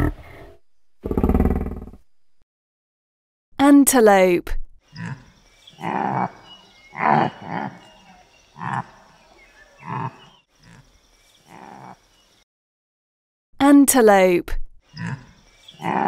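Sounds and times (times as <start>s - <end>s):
antelope hoarse calls: 4.9s - 12.2s, 14.9s - 16.0s.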